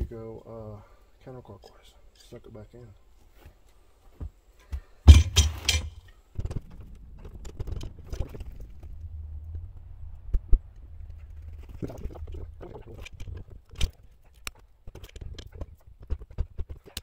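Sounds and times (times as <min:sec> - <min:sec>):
low steady hum: 0:03.9 - 0:16.6.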